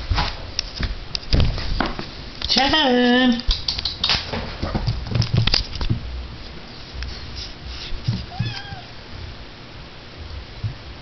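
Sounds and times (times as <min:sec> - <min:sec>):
knocks and scuffles on rug: 0:07.2 - 0:08.8
kitten meowing: 0:08.3 - 0:09.0.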